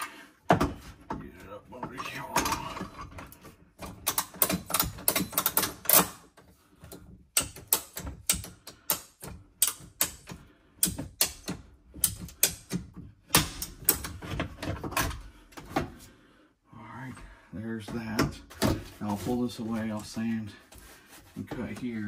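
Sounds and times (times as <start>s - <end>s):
pipe cutter clicking and scraping: 2.4s - 15.8s.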